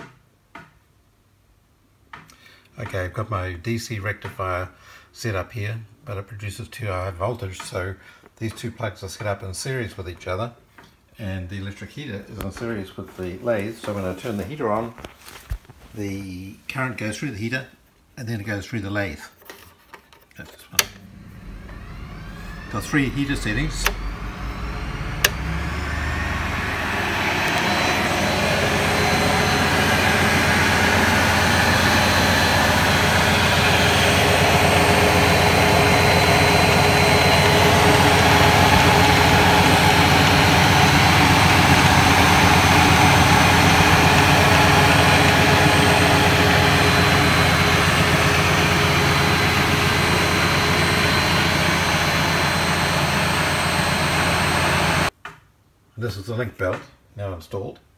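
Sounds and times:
electric motor running: 20.9s - 55.1s
switch click: 25.2s - 25.5s.

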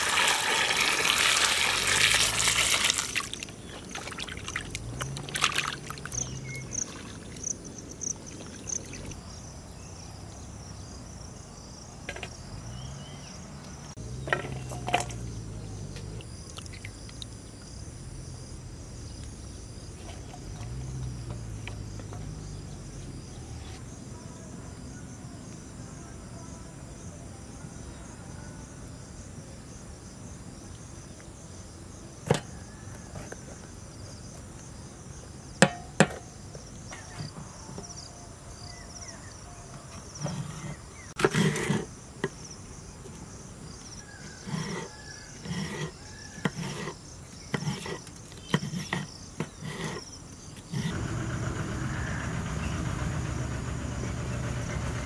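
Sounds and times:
insect chirring: 5.9s - 9.6s.

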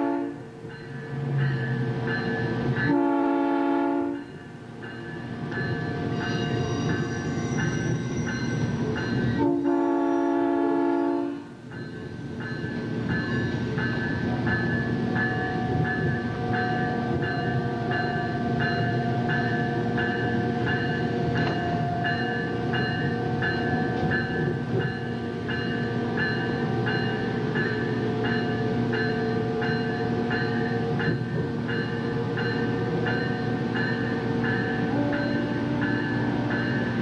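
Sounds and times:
train horn blast: 0.0s - 0.5s, 2.9s - 4.3s, 9.4s - 11.5s, 34.7s - 37.0s
electric train running: 4.1s - 37.0s
warning bell ringing: 4.2s - 9.4s.

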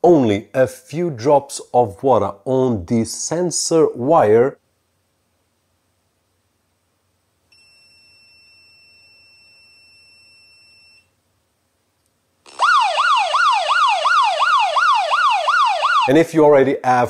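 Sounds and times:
phone alarm siren: 12.5s - 16.1s.

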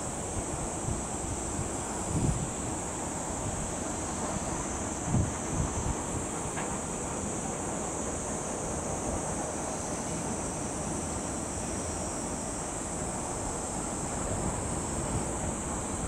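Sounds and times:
steady high hiss: 0.0s - 16.0s.

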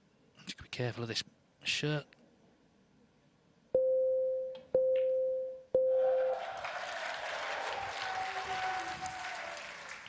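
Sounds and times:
electronic shot clock beeps: 3.8s - 6.4s
crowd noise: 6.0s - 10.0s.

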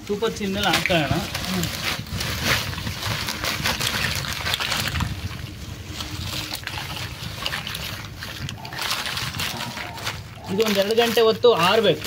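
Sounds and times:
plastic sack crinkling: 0.0s - 12.0s
dry pods rattling: 0.1s - 12.0s.

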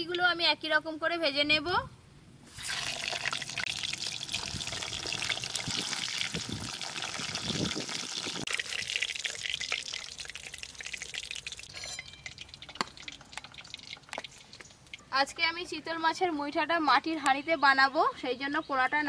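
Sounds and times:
dumplings sizzling in hot oil: 2.5s - 15.1s.

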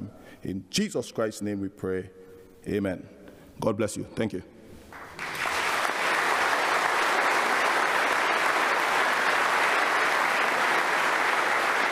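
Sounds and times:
crowd applauding: 4.9s - 11.9s.

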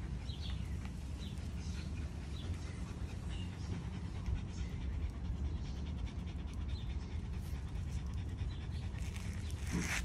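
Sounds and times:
puppies panting: 0.0s - 10.0s.

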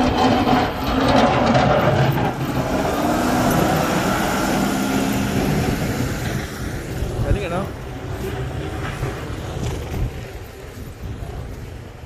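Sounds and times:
snowplow truck engine passing: 0.0s - 12.0s.

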